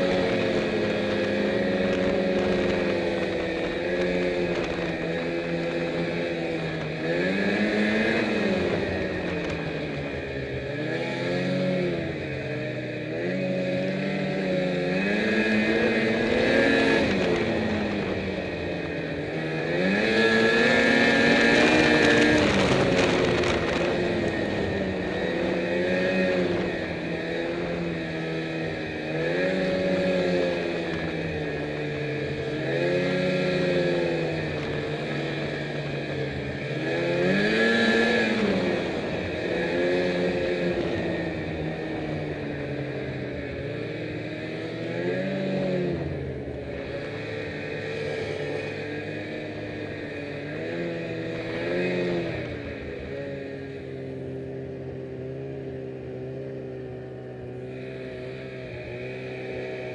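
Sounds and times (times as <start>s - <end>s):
snowmobile engine revving: 0.0s - 59.9s.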